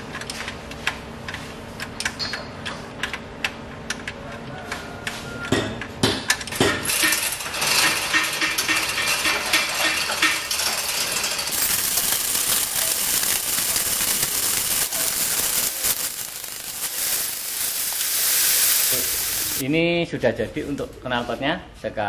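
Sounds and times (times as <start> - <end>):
hoist chain clinking: 6.9 - 19.6
steady hiss: 11.5 - 19.6.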